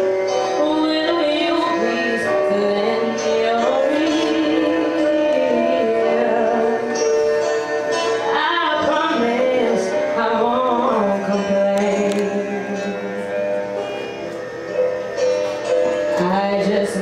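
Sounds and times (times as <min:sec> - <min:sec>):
music: 0:00.0 - 0:17.0
woman singing into microphone: 0:00.5 - 0:07.1, 0:08.2 - 0:13.2, 0:16.1 - 0:17.0.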